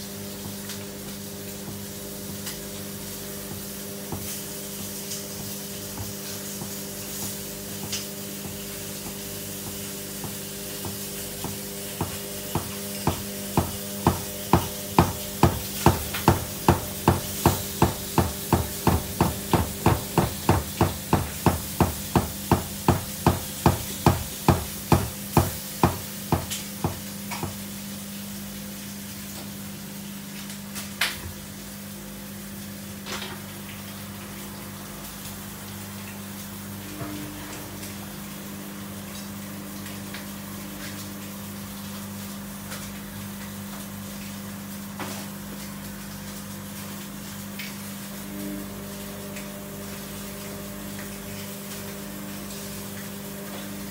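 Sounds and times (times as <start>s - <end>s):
washing machine motor hum: 0.0s - 53.9s
washing machine drum thumps: 3.4s - 27.6s.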